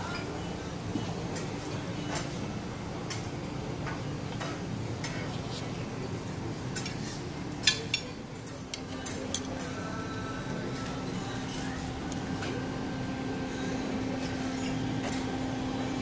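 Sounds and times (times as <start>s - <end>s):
steady room hum: 0.0s - 16.0s
dishes and cutlery clinking: 6.7s - 9.8s.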